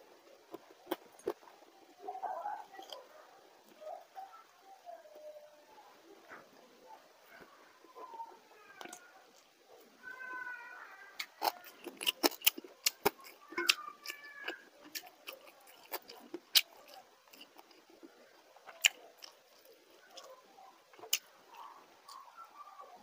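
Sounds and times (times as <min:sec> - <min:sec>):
person chewing crunchy food: 0:00.5 - 0:01.4, 0:11.2 - 0:20.3, 0:20.9 - 0:22.4.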